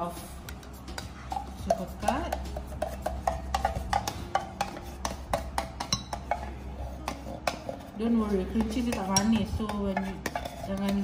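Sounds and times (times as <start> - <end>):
music with percussive beat: 0.5 - 7.6.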